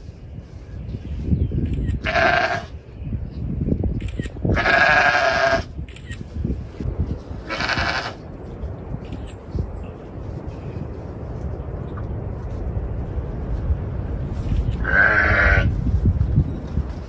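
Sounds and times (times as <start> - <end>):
sheep bleating: 2.0 - 2.7, 4.6 - 5.7, 14.8 - 15.7.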